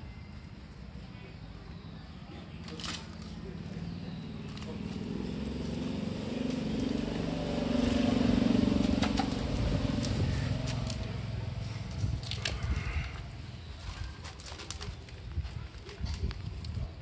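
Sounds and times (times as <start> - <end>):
vehicle engine passing by: 3.2 - 13.7.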